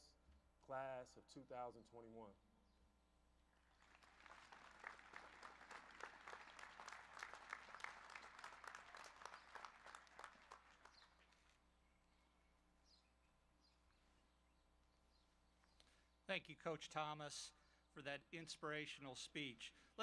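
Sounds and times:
faint audience applause: 3.6 - 11.6.

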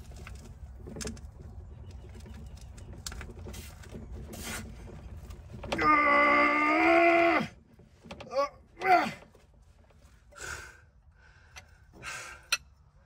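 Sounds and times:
man groaning with strain: 8.2 - 9.3.

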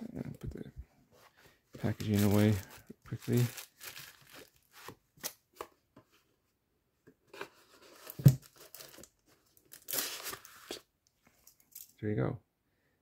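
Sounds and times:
plastic wrap rustling: 1.8 - 4.9.

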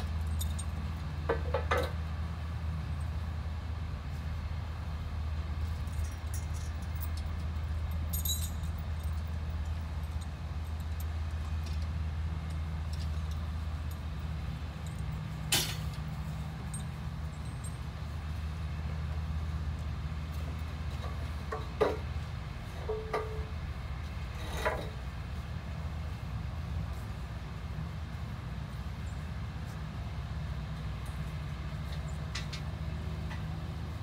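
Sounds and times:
tractor engine idling: 0.0 - 34.0.

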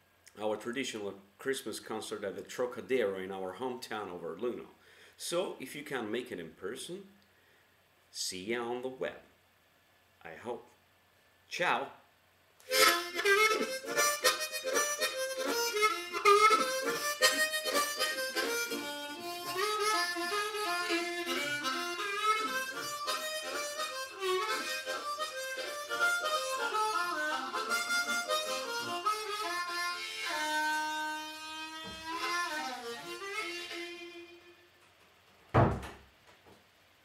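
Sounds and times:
harmonica playing lively tune: 12.7 - 34.8.

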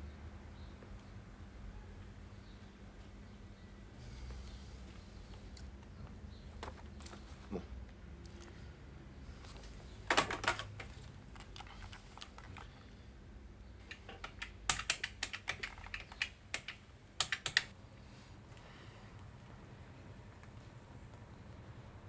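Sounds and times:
typing on computer keyboard: 10.1 - 12.7, 13.8 - 17.7.

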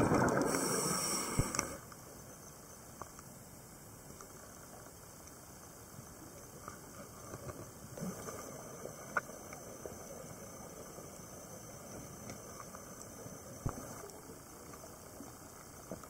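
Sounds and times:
underwater hiss: 0.0 - 2.3, 4.2 - 16.0
small underwater clicks and crackles: 0.0 - 16.0.

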